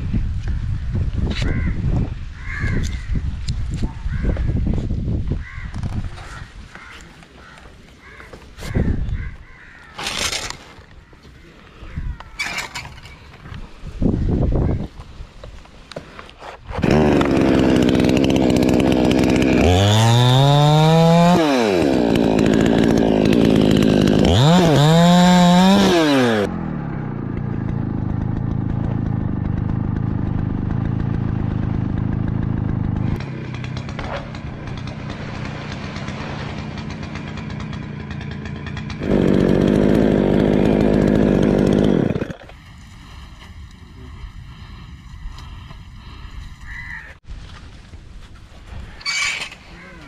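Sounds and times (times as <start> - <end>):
chainsaw revving: 16.7 - 43.2.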